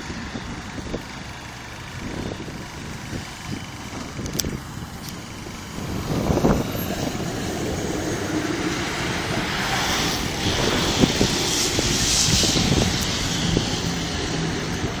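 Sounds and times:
tram rumble and hiss: 0.0s - 15.0s
high hiss: 8.2s - 14.8s.

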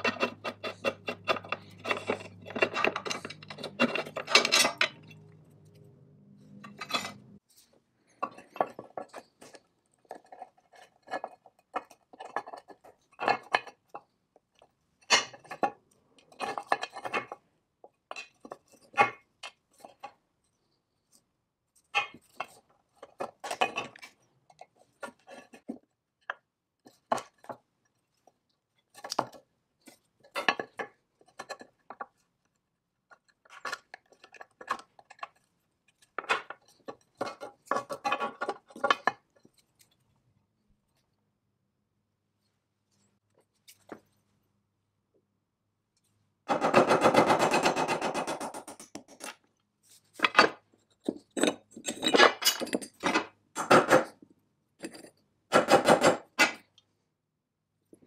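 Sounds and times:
wheel turned with rasping rub: 0.0s - 5.3s
metal parts clinking and scraping: 0.0s - 7.4s, 48.7s - 53.3s.

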